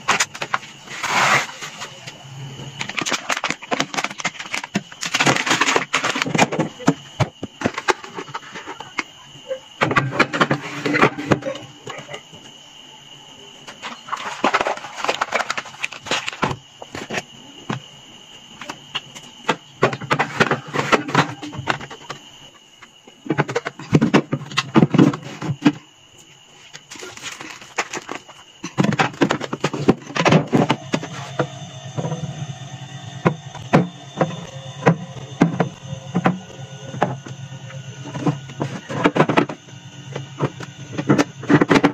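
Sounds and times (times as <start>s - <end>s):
plastic bottles knocking and crinkling: 2.6s - 9.1s, 13.7s - 17.9s, 18.6s - 25.9s, 26.6s - 32.3s, 38.0s - 41.9s.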